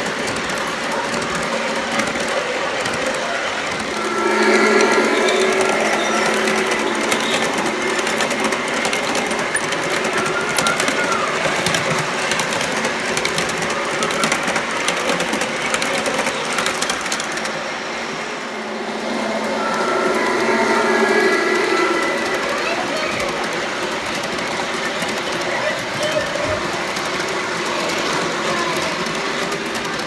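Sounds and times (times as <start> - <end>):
model train wheels clicking on track: 0.0 - 4.0, 5.8 - 17.8, 22.3 - 30.0
train rolling rumble: 0.0 - 30.0.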